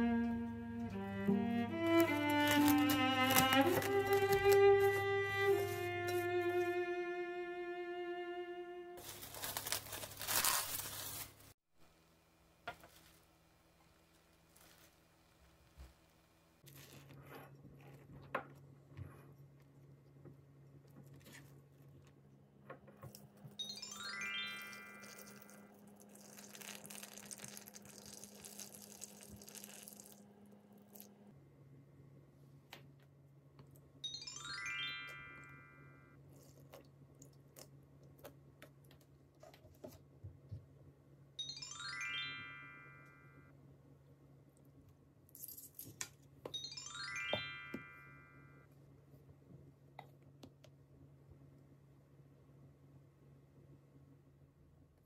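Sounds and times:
water pouring into a bowl: 24.7s - 30.2s.

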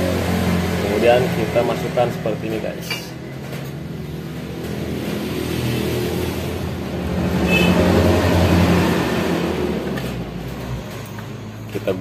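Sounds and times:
vehicle engine passing by: 4.0s - 12.0s.

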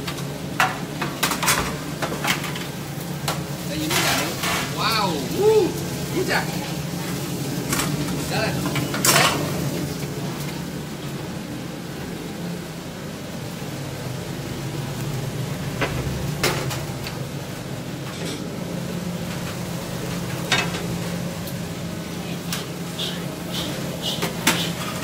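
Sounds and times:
ventilation hum: 0.0s - 25.0s
metal utensils and pans clanking: 0.6s - 4.9s, 7.6s - 9.6s, 18.0s - 18.5s, 19.3s - 20.9s, 22.5s - 25.0s.

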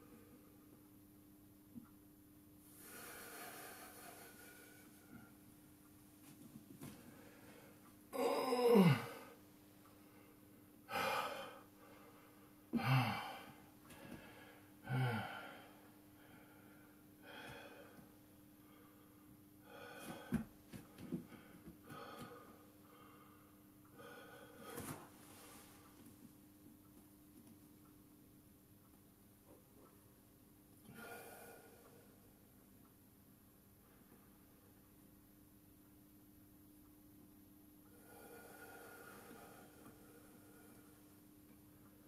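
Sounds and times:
man breathing hard: 2.8s - 5.3s, 10.0s - 25.1s, 38.0s - 41.0s
man groaning: 8.1s - 9.2s, 12.8s - 13.4s.

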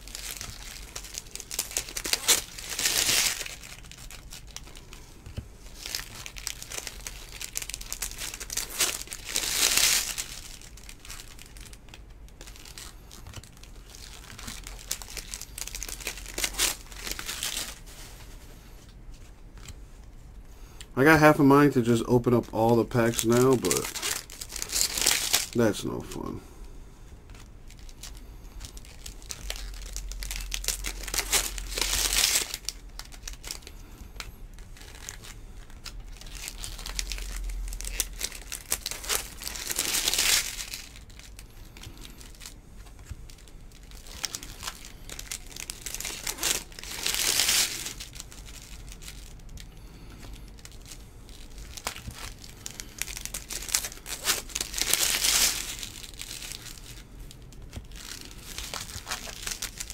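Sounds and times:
cards rustling swish: 22.9s - 24.2s.

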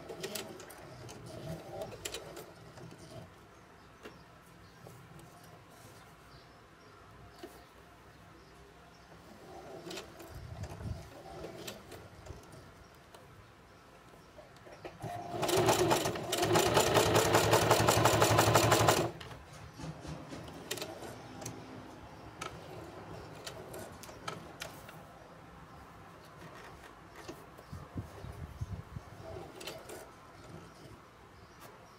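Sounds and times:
quiet clicks and handling noises: 0.0s - 6.5s, 9.1s - 15.1s, 18.7s - 25.2s, 26.0s - 28.2s
sewing machine stitching: 11.1s - 12.5s, 15.0s - 19.2s, 19.8s - 21.5s
sewing machine motor hum: 15.0s - 19.2s.

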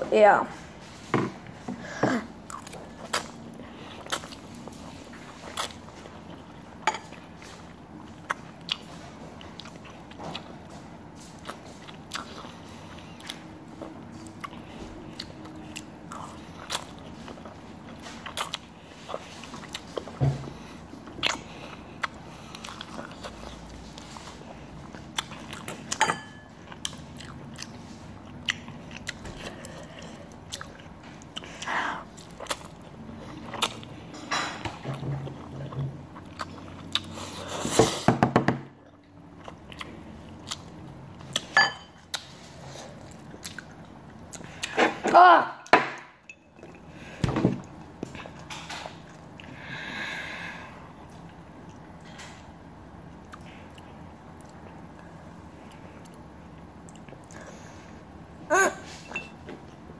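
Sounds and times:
person chewing and slurping noodles: 2.3s - 34.1s, 34.8s - 38.1s.

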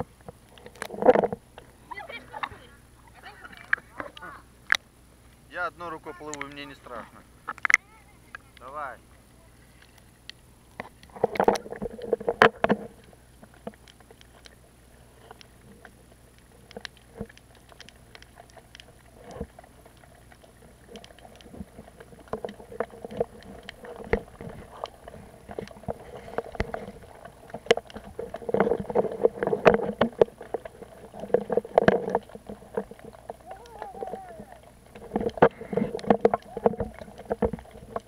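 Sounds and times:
underwater clicks and knocks: 0.0s - 1.7s, 7.4s - 8.7s, 9.8s - 14.6s, 15.2s - 38.0s
water sloshing and bubbling: 0.0s - 38.0s.

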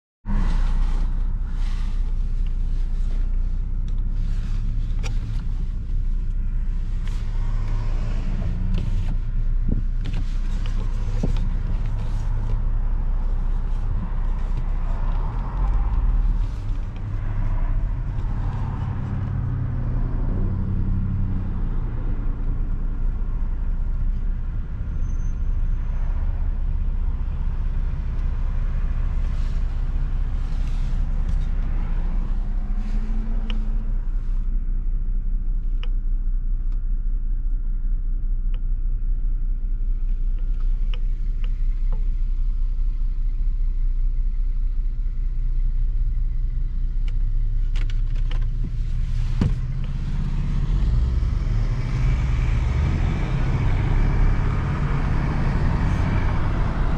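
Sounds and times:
car engine and road noise: 0.2s - 56.9s.

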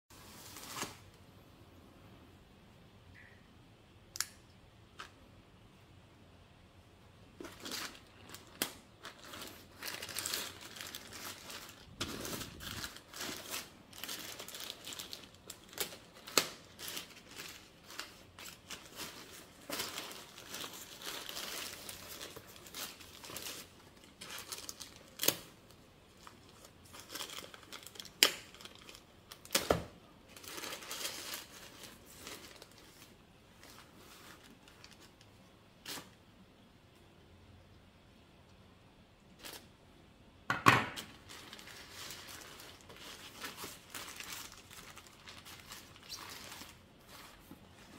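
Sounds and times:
knife slitting plastic bag: 7.4s - 25.5s
plastic bag tearing and crinkling: 7.4s - 35.2s, 39.4s - 39.7s, 41.0s - 47.9s.

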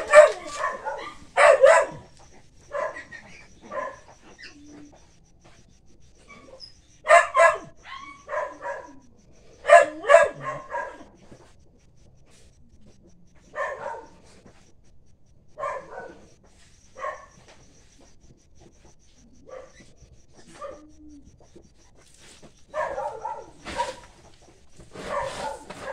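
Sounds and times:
dog barking: 0.0s - 4.4s, 6.3s - 11.2s, 13.4s - 14.3s, 15.5s - 16.3s, 17.0s - 17.4s, 19.4s - 19.9s, 20.5s - 21.0s, 22.7s - 24.1s, 24.9s - 25.9s.

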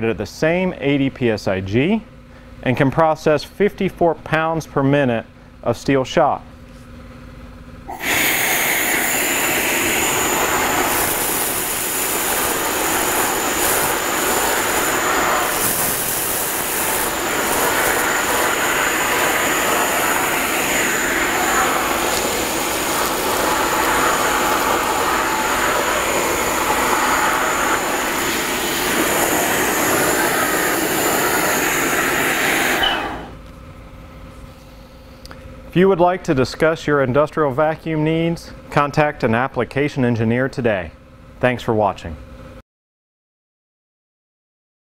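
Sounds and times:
high whistle: 7.9s - 14.0s, 14.6s - 33.4s
vacuum air rush: 7.9s - 33.4s.

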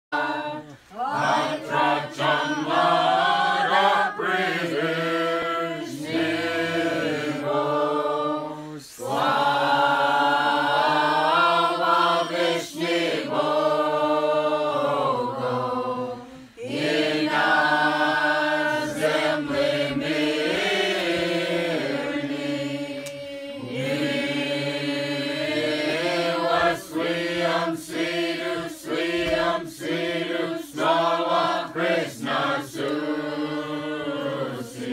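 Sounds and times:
crowd singing a carol: 0.0s - 34.9s.

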